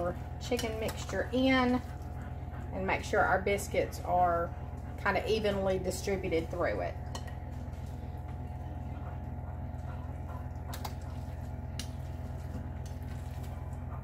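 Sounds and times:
steady low hum: 0.0s - 14.0s
food squishing: 7.0s - 14.0s.

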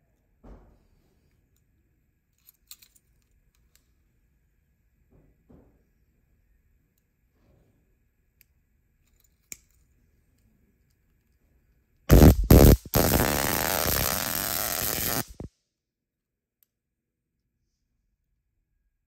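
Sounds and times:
stun baton electric buzz: 12.1s - 15.5s.

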